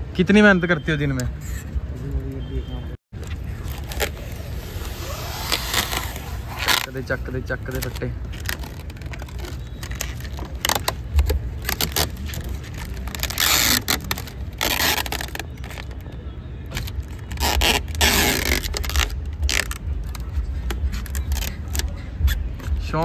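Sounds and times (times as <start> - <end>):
film tearing off window glass: 3.6 - 16.0, 16.7 - 22.0.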